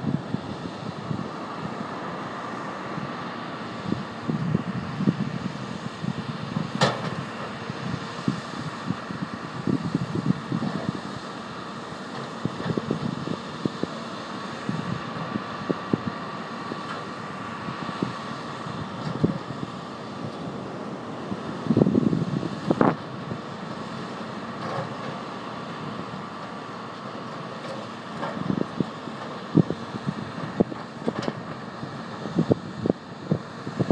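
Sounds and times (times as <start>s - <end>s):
distant excavator engine hum: 0.0s - 33.9s
wind buffeting microphone: 3.8s - 11.0s, 21.3s - 23.5s, 32.2s - 33.9s.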